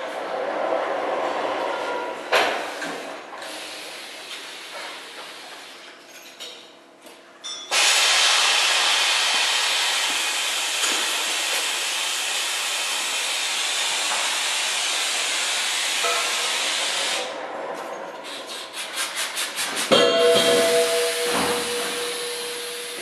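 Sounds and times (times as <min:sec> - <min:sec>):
vacuum suction hiss: 0:20.4 - 0:23.0.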